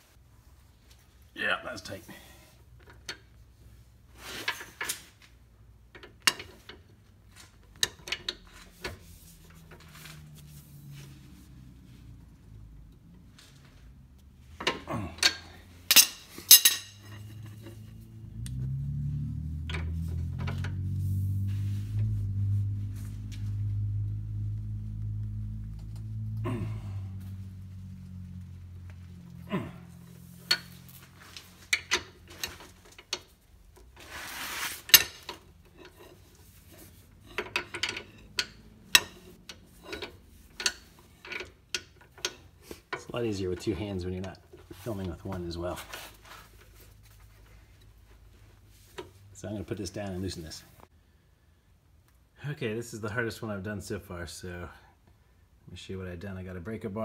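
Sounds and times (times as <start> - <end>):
rustling scrape: 4.1 - 5.1, 8.4 - 12.2, 19.9 - 23.6, 33.9 - 38.2, 45.7 - 49.4
low steady hum: 5.9 - 55.8
steel tools clinking: 14.6 - 18.0.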